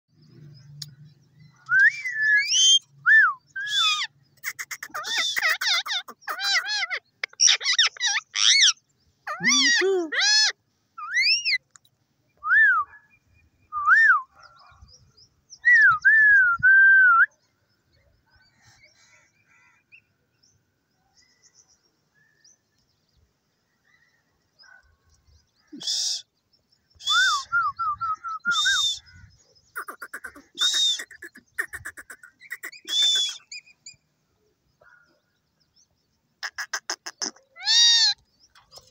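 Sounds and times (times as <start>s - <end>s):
parakeet whistling and chirping: 32.5s - 33.8s
parakeet harsh screeches: 36.5s - 38.2s.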